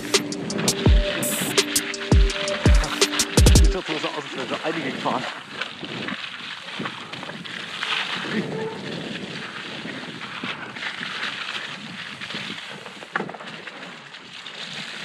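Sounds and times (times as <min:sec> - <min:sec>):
bike tyres rushing on wet mud: 0:00.0 - 0:15.0
bike knocking: 0:02.1 - 0:03.8
wind on microphone: 0:04.8 - 0:13.5.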